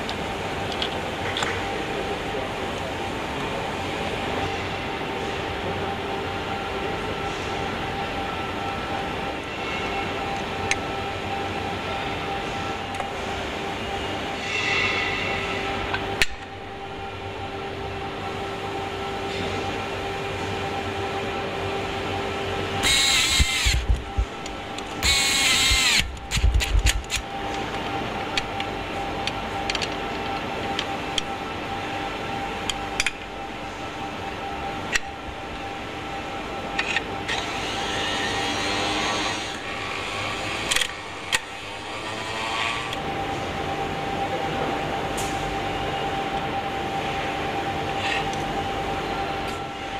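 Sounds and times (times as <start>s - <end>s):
factory hum: 0.0s - 49.9s
power tool running: 22.8s - 26.5s.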